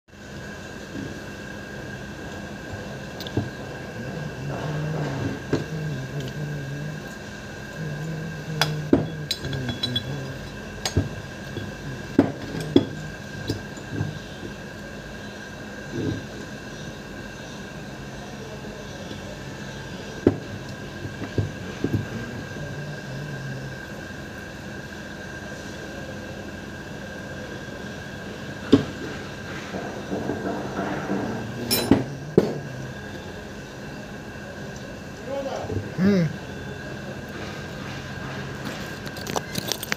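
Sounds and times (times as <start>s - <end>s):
steady hum: 0.1s - 39.9s
metal parts clinking and knocking: 9.0s - 11.7s, 31.7s - 32.1s, 39.0s - 39.9s.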